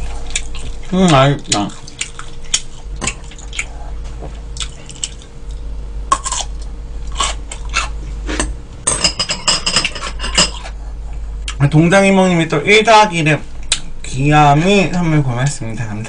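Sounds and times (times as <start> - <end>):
chewing: 0.0 - 8.0
utensils clicking against bowls: 6.4 - 10.7.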